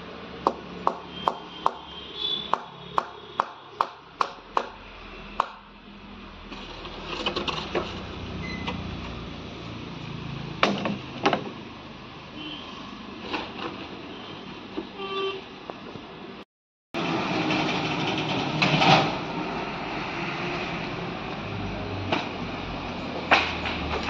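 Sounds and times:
hammer blows: 0:00.5 - 0:04.8.

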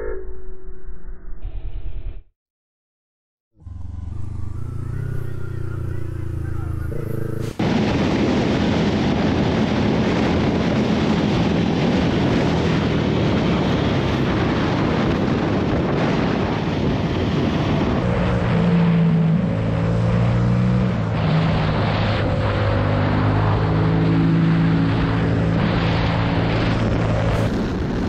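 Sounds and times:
motorcycle engine drone: 0:03.6 - 0:28.0
wind rush on microphone: 0:07.4 - 0:19.6, 0:20.5 - 0:28.0.

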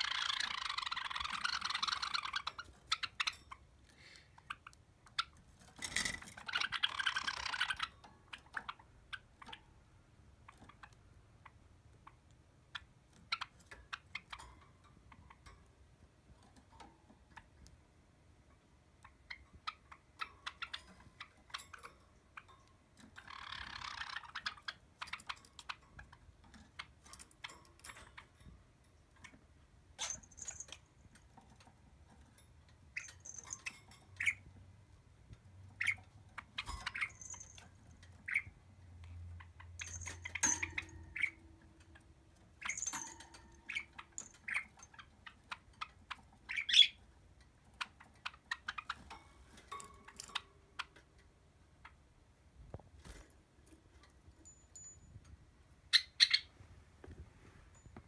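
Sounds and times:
birds chirping sharply: 0:39.3 - 0:47.0.

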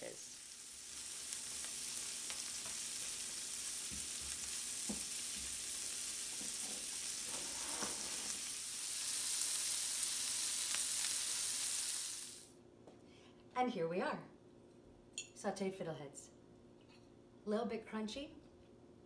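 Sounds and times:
vegetables sizzling in butter: 0:00.0 - 0:12.5.

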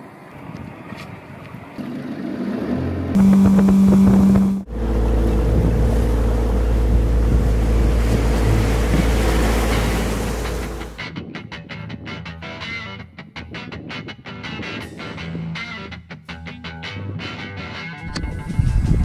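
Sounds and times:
outboard motor drone: 0:01.7 - 0:11.0
water rushing past hull: 0:01.7 - 0:11.0
wind buffeting microphone: 0:03.2 - 0:11.4, 0:18.2 - 0:19.0.

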